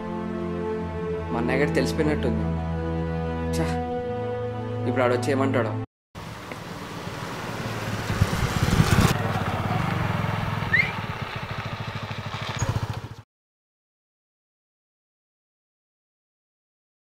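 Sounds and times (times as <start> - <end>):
motorcycle engine: 6.2 - 13.3.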